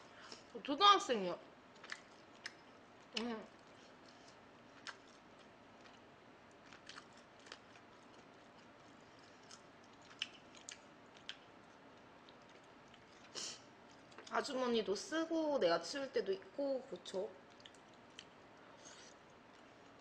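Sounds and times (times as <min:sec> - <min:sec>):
soft chewing clicks: 0:01.7 - 0:14.5, 0:16.9 - 0:20.0.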